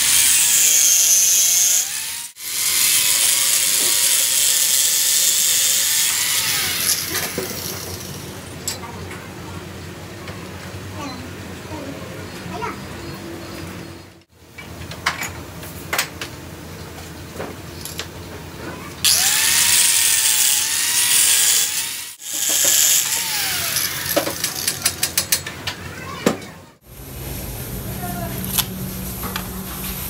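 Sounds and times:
power tool hissing on metal: 0:00.0 - 0:08.2, 0:19.1 - 0:24.6.

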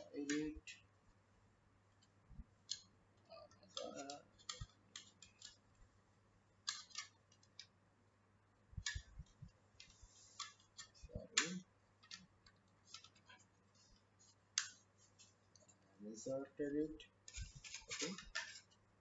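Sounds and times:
plastic clicks and scrapes: 0:03.5 - 0:05.6, 0:06.6 - 0:07.7, 0:08.8 - 0:15.8, 0:17.3 - 0:18.8.

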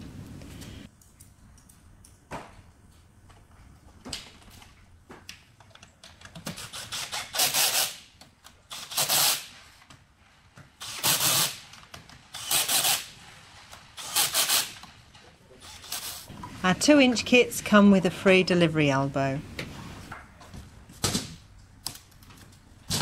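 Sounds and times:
cordless drill bursts: 0:10.8 - 0:11.6, 0:12.3 - 0:13.1, 0:14.0 - 0:14.8.

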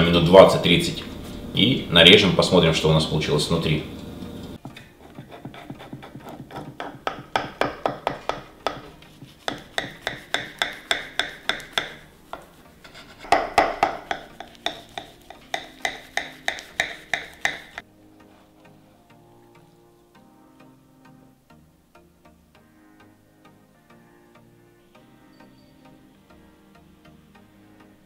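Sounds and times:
knife sawing through pastry crust: 0:05.0 - 0:07.0, 0:08.7 - 0:17.8.

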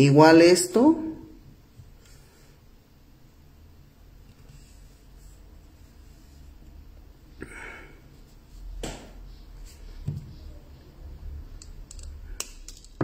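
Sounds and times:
wire handling noises: 0:11.5 - 0:13.0.

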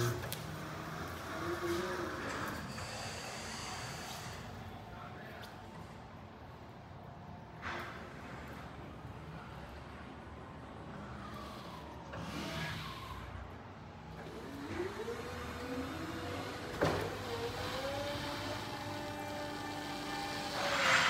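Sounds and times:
hydraulic lift motor whining: 0:00.0 - 0:03.6, 0:10.9 - 0:21.0.

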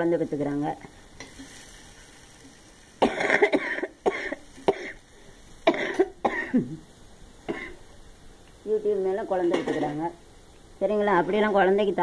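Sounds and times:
person coughing: 0:03.0 - 0:05.0, 0:05.6 - 0:06.8, 0:07.5 - 0:07.8.

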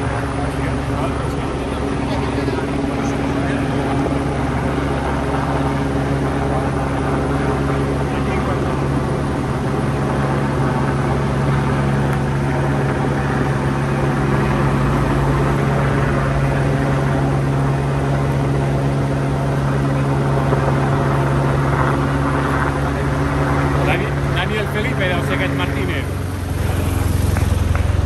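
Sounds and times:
helicopter rotors droning: 0:00.0 - 0:28.0
motorcycle approaching: 0:23.7 - 0:28.0
car passing: 0:23.8 - 0:28.0.

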